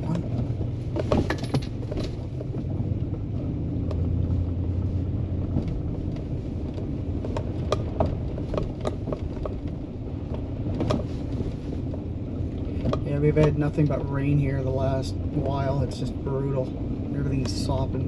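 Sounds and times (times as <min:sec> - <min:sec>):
knocks and rattles from bumps: 0:00.0 - 0:04.4, 0:05.3 - 0:13.7
vehicle engine running at low speed: 0:00.0 - 0:18.0.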